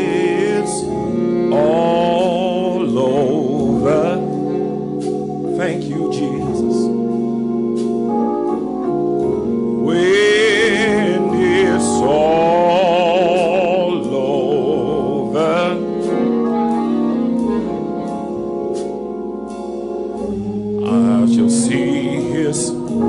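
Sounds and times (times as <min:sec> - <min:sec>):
person singing: 0:00.0 - 0:04.8, 0:05.5 - 0:07.0, 0:09.8 - 0:18.2, 0:20.8 - 0:23.0
organ chords: 0:00.0 - 0:23.0.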